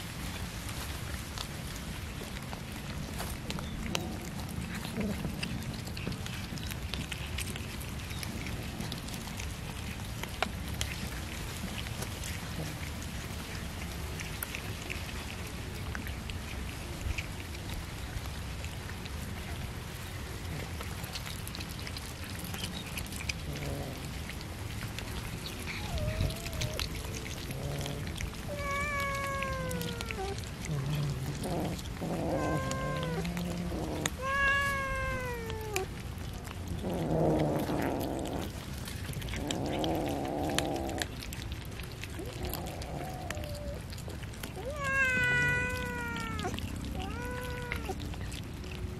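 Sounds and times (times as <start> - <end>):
kittens chewing wet smacking: 0.0 - 48.9
low rasping growls: 3.8 - 9.5, 11.6 - 14.2, 22.2 - 48.9
kittens meowing: 25.4 - 36.0, 42.1 - 48.4.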